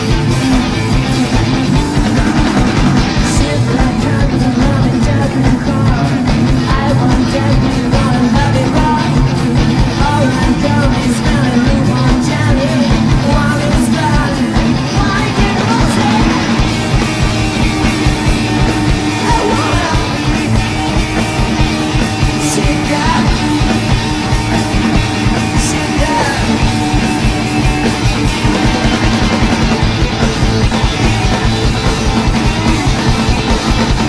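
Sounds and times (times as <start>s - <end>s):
rock band playing: 0.0s - 34.0s
man singing: 3.2s - 16.6s, 19.1s - 20.4s, 22.3s - 23.4s, 25.3s - 26.7s.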